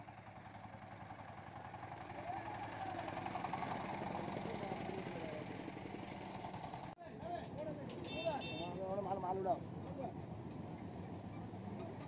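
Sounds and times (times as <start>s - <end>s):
diesel engine chugging: 0.0s - 7.0s.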